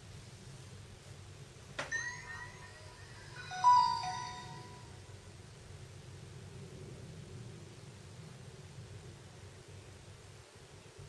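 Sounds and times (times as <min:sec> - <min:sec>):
phone start-up chime: 0:01.8 - 0:05.1.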